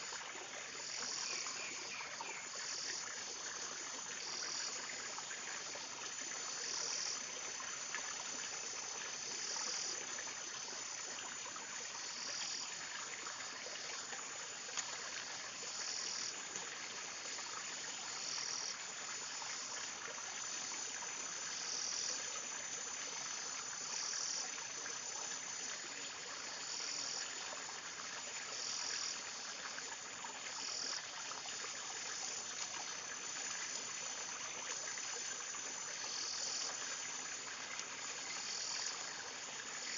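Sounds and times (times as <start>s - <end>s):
pulsing insect call: 14.9s - 27.6s, 30.5s - 39.9s.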